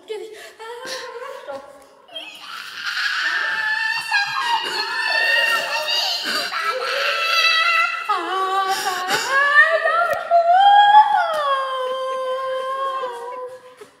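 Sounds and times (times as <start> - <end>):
girl singing loudly: 2.2 - 13.7.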